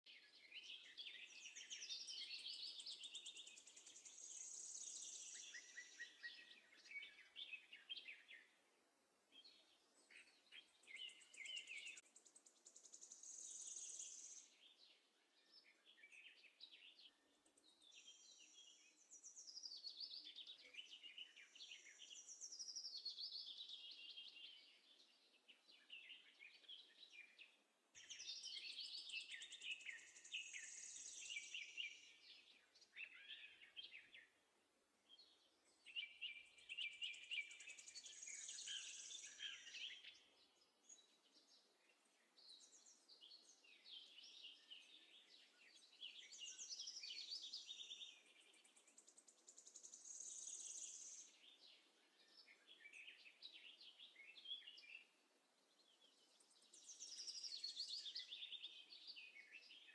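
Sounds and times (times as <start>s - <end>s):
faint birds chirping and trilling: 0.0s - 59.9s.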